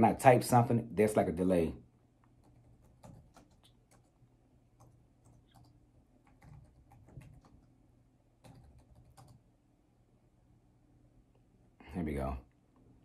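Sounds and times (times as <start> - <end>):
laptop keyboard typing: 2.4 - 4.2, 4.8 - 7.7, 8.4 - 9.5.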